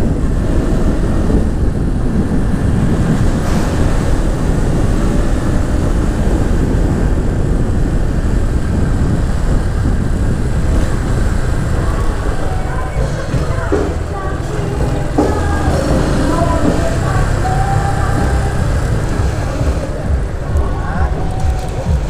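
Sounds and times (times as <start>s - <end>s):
motorcycle running: 0.0s - 22.0s
wind rush on microphone: 0.0s - 22.0s.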